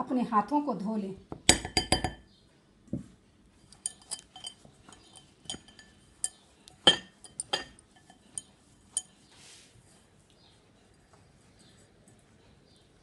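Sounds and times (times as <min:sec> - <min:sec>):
clinks against glass bowl: 0:01.5 - 0:02.3, 0:03.7 - 0:09.2.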